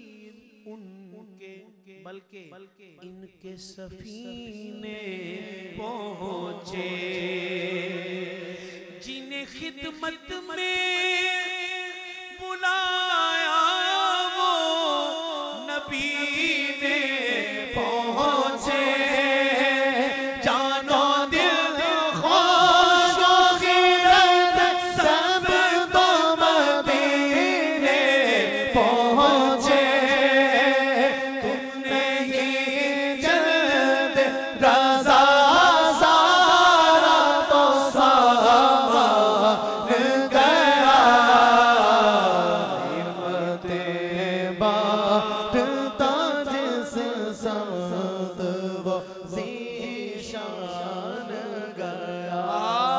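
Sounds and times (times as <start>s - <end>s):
men chanting melodically: 12.6s - 52.9s.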